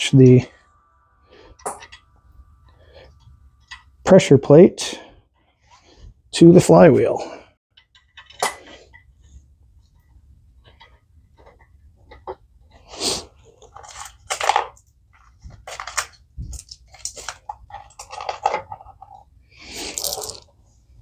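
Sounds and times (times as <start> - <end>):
metallic clinks and scrapes: 15.4 - 20.5.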